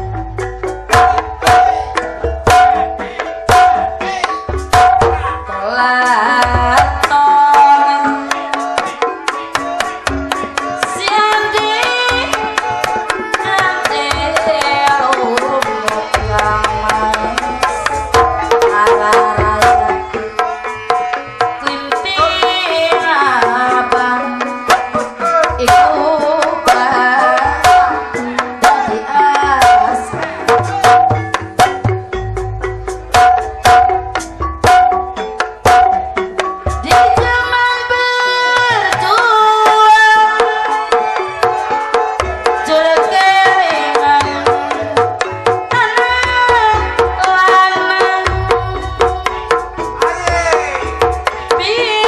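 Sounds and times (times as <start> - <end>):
hand drums playing quick strokes: 8.3 - 37.7, 40.0 - 52.0.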